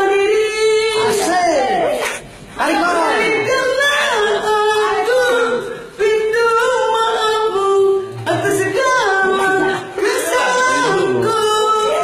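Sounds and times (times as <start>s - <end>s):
person singing unaccompanied: 2.6s - 12.0s.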